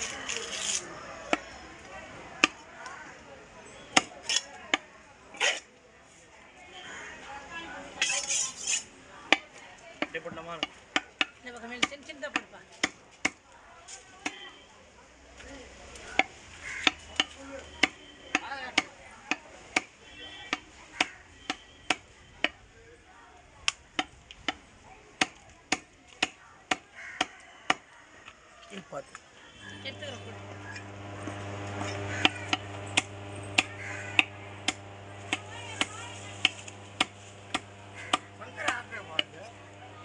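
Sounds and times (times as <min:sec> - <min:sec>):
steady low hum: 0:29.6 - 0:40.0.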